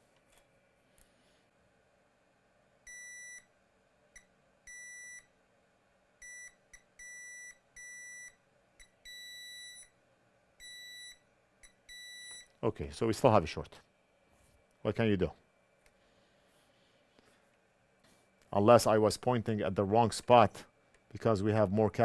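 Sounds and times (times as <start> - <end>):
multimeter beeping: 2.9 - 3.5, 4.2 - 5.3, 6.2 - 9.9, 10.6 - 12.5.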